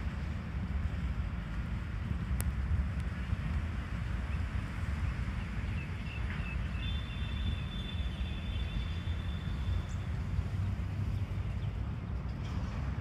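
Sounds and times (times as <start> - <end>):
thin high whistle: 6.8 - 10.0.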